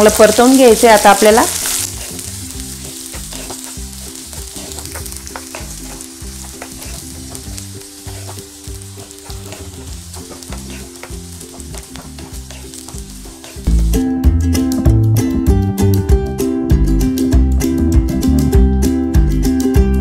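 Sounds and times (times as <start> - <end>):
food sizzling in hot oil: 0.0 - 14.1
wooden spatula scraping a pan: 1.6 - 13.7.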